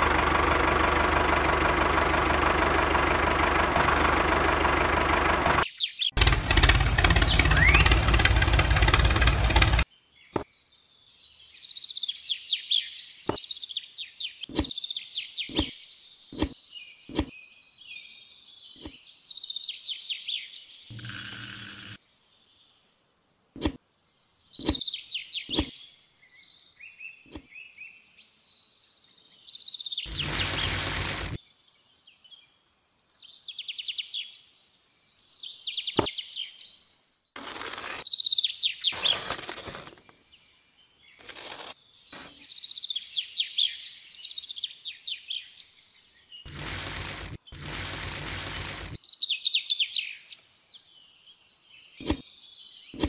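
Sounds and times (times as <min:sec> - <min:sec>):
small birds chirping: 0:05.6 - 0:53.0
sand and gravel poured by hand: 0:30.1 - 0:31.4, 0:38.9 - 0:40.0, 0:46.5 - 0:49.0
sharp little clicks: 0:46.5 - 0:49.0.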